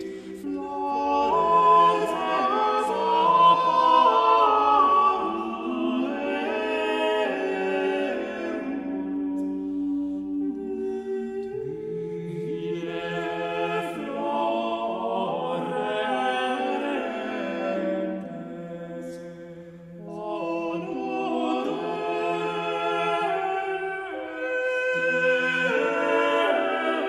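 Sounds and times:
unaccompanied choir singing: 0.0 - 27.0.

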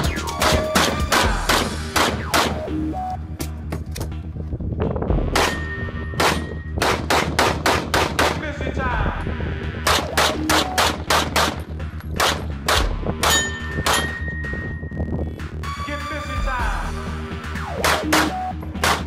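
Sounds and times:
rapid handgun shots: 0.4 - 2.7, 5.3 - 8.5, 9.8 - 14.1, 17.6 - 19.0.

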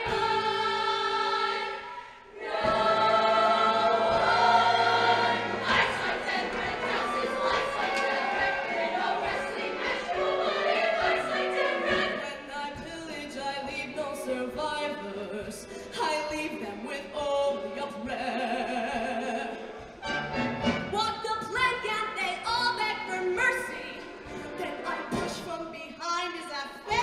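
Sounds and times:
choir singing: 0.0 - 15.4.

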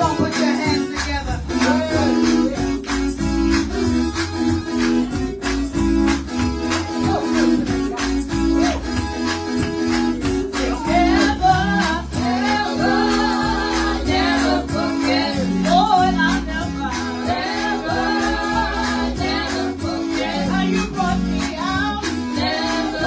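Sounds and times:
sustained instrumental chords: 0.0 - 23.0
woman singing into microphone: 10.7 - 13.4, 14.0 - 17.9, 19.2 - 23.0.

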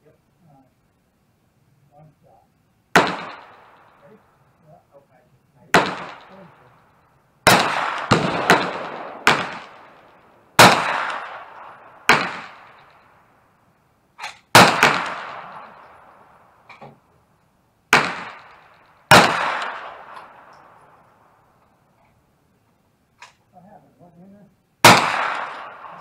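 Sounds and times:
gunshots with ringing echo: 2.9 - 4.3, 5.7 - 13.3, 14.5 - 16.8, 17.9 - 21.6, 24.8 - 26.0.

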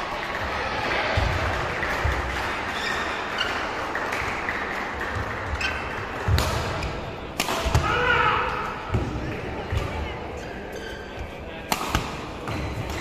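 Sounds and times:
racket striking shuttlecock: 6.3 - 8.0, 11.6 - 13.0
shoe squeaks on court: 10.4 - 11.3.

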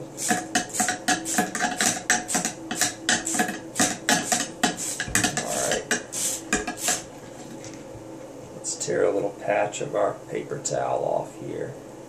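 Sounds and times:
brush scrubbing in metal chamber: 0.2 - 7.1
cleaning rod clicking and scraping: 0.2 - 7.1.

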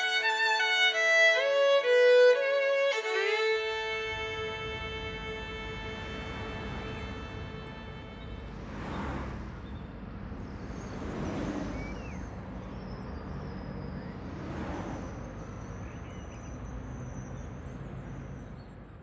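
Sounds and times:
cars passing: 0.0 - 19.0
street traffic noise: 0.0 - 19.0.

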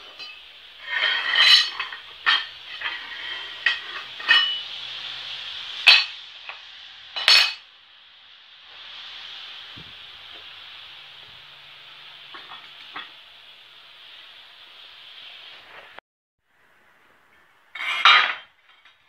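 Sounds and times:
metal pieces clanking on tile: 17.7 - 19.0.

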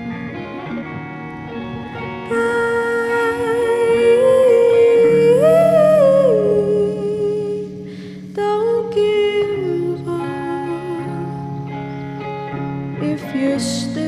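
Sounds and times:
electric guitar chords: 0.0 - 14.0
woman singing wordless melody: 2.2 - 11.9, 13.0 - 14.0
singer breathing: 7.8 - 8.3.

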